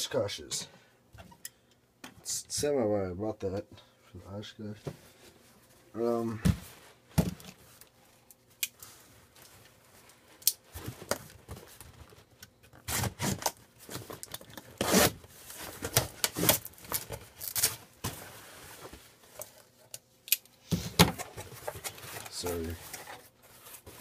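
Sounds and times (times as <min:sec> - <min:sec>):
packing tape ripping off cardboard: 0:12.7 - 0:17.8.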